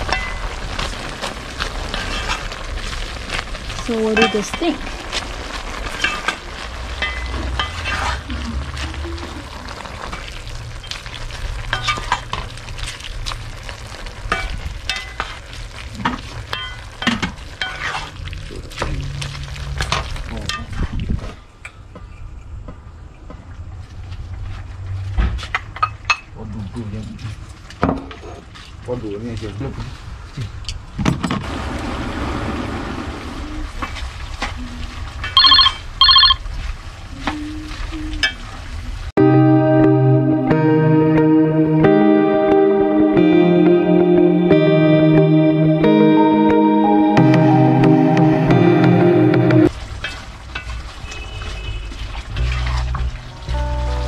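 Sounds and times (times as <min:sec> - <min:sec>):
wooden spoon stirring in a pot: 0:00.0 - 0:20.8, 0:49.7 - 0:53.3
food sizzling: 0:00.0 - 0:21.4, 0:31.4 - 0:54.0
background noise: 0:00.0 - 0:54.0
wooden spatula scraping a pot: 0:01.6 - 0:03.4, 0:04.2 - 0:10.4, 0:17.6 - 0:19.3
telephone ringing: 0:35.4 - 0:36.4.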